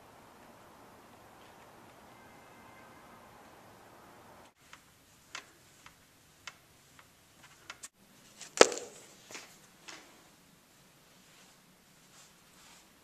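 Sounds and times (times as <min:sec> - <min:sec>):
light irregular clicks and taps: 0:04.4 - 0:07.9.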